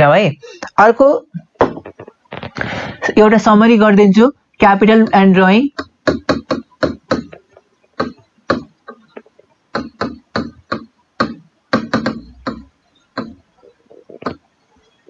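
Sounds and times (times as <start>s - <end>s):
marker writing on whiteboard: 5.8s - 14.5s.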